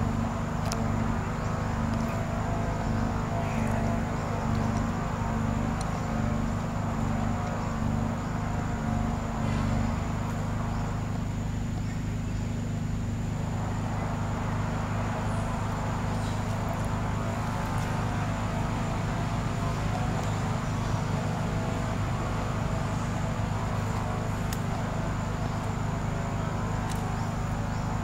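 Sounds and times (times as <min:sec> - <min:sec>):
engine droning: 0:00.0 - 0:28.0
faint clicks: 0:00.6 - 0:01.0, 0:23.4 - 0:25.0, 0:26.7 - 0:27.5.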